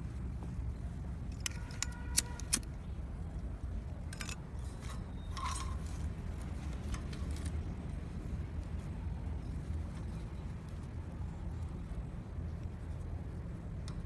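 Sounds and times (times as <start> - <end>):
steady low rumble: 0.0 - 14.0
metal fan guard clinking: 1.2 - 2.7, 4.0 - 7.6.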